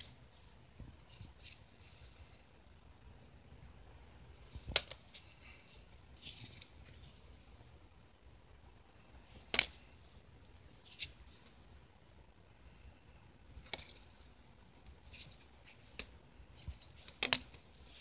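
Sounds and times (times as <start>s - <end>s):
trading cards snapping: 17.0s - 17.6s.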